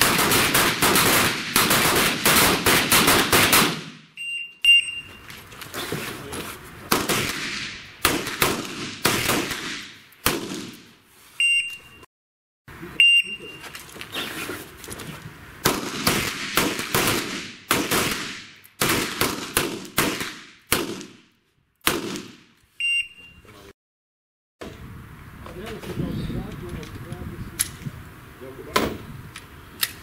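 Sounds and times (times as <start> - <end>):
pistol shots echoing: 0.0 - 4.0, 6.9 - 10.8, 15.6 - 21.2, 21.8 - 22.4
short electronic beeps: 4.2 - 5.3, 11.4 - 12.1, 13.0 - 13.7, 22.8 - 23.6.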